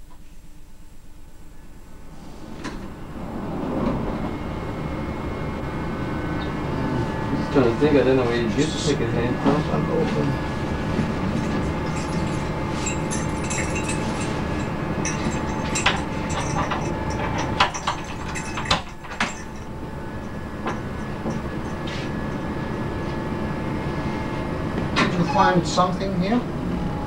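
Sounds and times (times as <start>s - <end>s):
electric train rumble on track: 0.0s - 27.0s.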